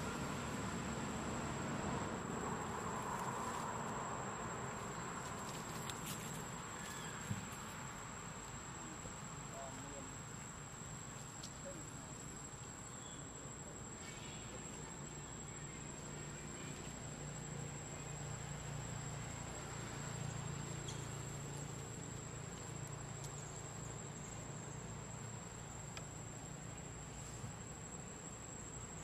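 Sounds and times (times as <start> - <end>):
faint clicks: 22.1 - 23.4.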